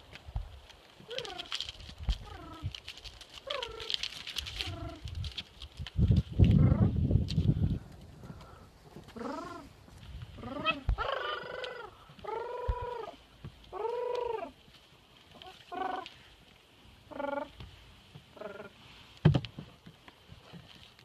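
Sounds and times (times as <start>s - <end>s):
leopard mewing calls: 9.2s - 9.7s, 10.4s - 14.6s, 15.3s - 16.2s, 17.1s - 17.6s, 18.3s - 18.8s.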